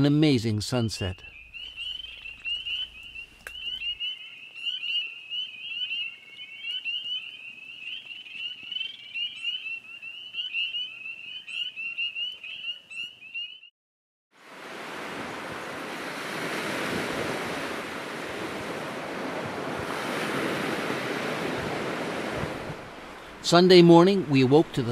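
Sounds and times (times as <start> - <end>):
chorus of frogs calling: 0.7 - 13.6.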